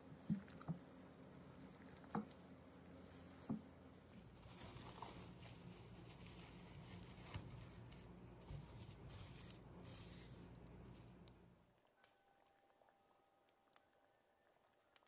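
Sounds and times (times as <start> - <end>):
low steady hum: 0.0 - 15.0
cling film crinkling: 4.2 - 12.8.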